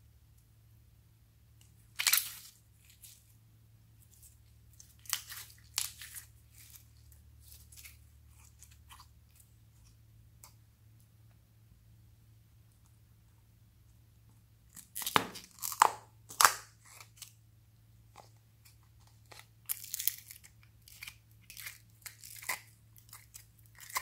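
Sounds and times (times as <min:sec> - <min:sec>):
slime crunching and crackling: 0:01.9 - 0:03.2, 0:04.1 - 0:09.5, 0:14.7 - 0:17.4, 0:19.1 - 0:24.0.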